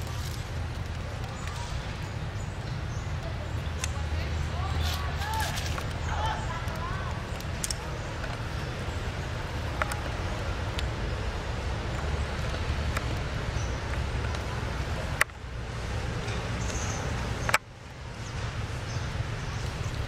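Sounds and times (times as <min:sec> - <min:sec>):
low rumbling background noise: 0:00.0 - 0:20.0
faint sharp clicks: 0:06.7 - 0:08.4.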